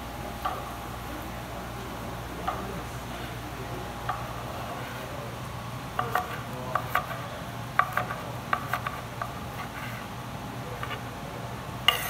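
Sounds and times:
knife chopping on wooden board: 0:07.8 - 0:09.8.

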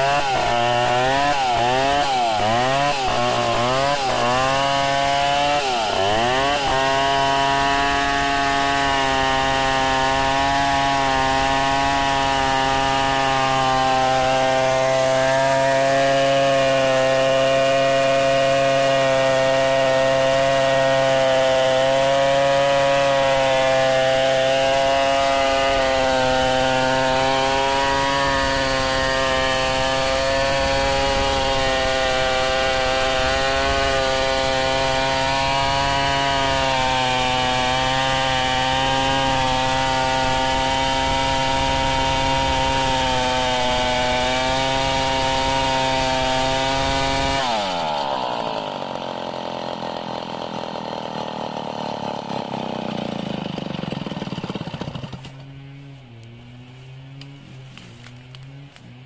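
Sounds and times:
chainsaw cutting log: 0:00.0 - 0:59.0.

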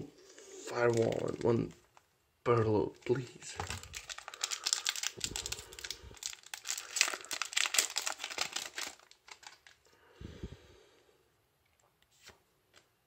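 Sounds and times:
foil wrapper crinkling and tearing: 0:00.7 - 0:01.7, 0:03.0 - 0:09.8.

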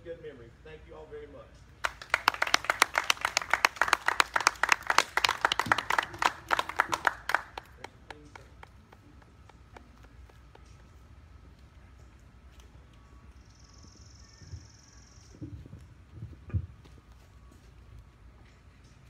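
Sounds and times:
audience applauding: 0:01.8 - 0:10.4.

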